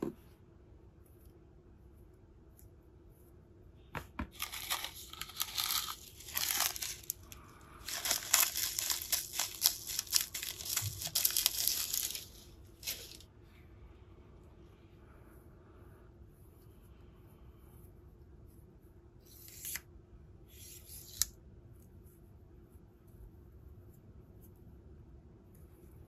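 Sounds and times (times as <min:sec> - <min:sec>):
packets crinkling in fingers: 0:04.4 - 0:13.2.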